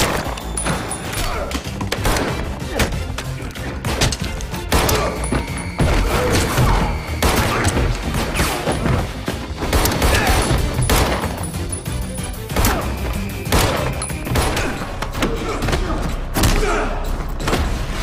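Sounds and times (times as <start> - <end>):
pistol gunshots: 0.0 - 0.4, 1.9 - 2.6, 7.2 - 8.5, 9.6 - 11.4, 13.4 - 14.8
dramatic film score: 0.0 - 18.0.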